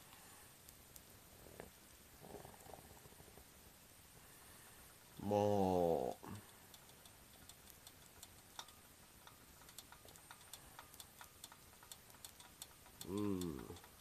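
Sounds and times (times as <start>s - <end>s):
food ticking and popping on hot plate: 0.6s - 2.0s, 6.2s - 14.0s
man humming: 5.2s - 6.4s, 13.0s - 13.8s.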